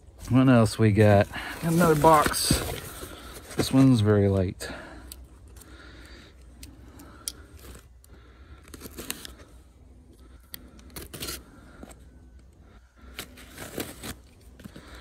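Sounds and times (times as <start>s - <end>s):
packing tape scraping and ripping: 1.5s - 3.9s, 8.6s - 9.6s, 10.5s - 12.0s, 13.0s - 15.0s
cardboard box handled: 1.6s - 3.9s.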